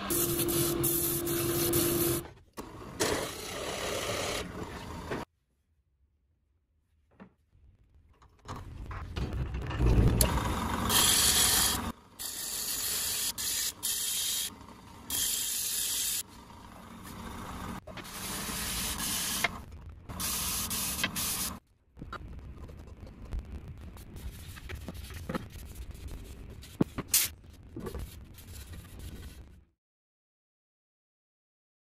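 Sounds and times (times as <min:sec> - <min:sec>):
sanding disc on wood: 0:00.0 - 0:02.2.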